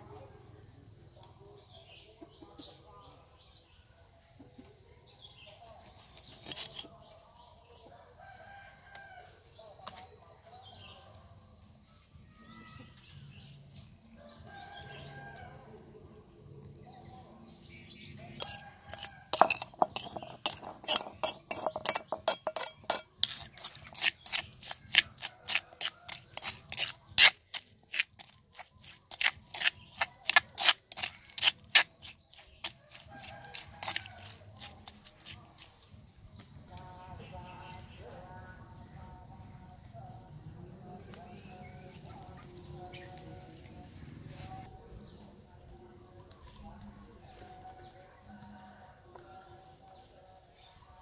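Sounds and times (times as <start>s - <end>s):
metal knife clinking on stone mortar: 18.4s - 28.3s, 29.1s - 31.9s.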